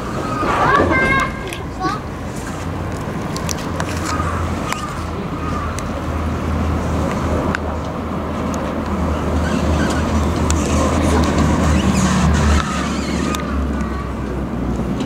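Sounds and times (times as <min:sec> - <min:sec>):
steady low rumble: 0:00.2 - 0:03.3.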